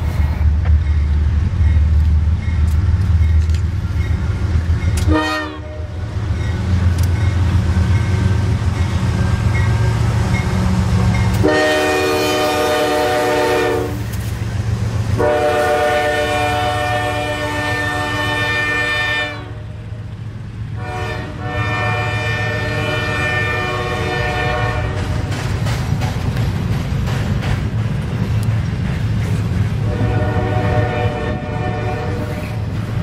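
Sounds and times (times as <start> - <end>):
diesel locomotives rumbling: 0.0 - 33.0
train horn chords: 5.0 - 6.0, 11.3 - 14.0, 15.2 - 19.8, 20.8 - 25.2, 29.8 - 32.7
freight cars rolling: 23.4 - 33.0.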